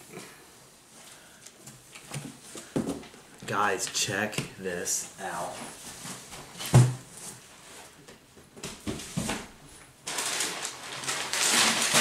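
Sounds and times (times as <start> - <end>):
cardboard scraping and rustling: 10.1 - 12.0.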